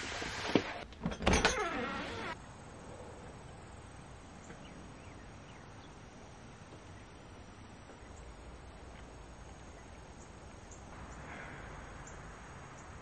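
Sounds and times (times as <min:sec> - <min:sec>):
door clicking and sliding open: 0:00.5 - 0:02.3.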